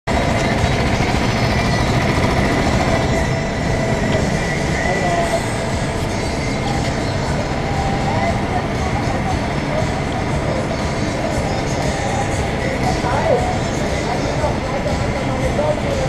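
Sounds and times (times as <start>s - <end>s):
faint whine: 0.1s - 16.0s
go-kart engines droning: 0.1s - 16.0s.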